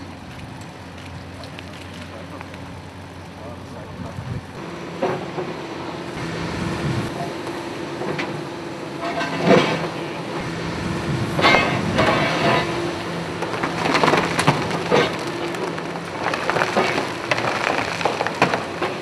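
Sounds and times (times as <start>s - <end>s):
excavator engine and hydraulics: 0.0s - 19.0s
debris falling: 11.3s - 19.0s
concrete crunching and cracking: 11.4s - 19.0s.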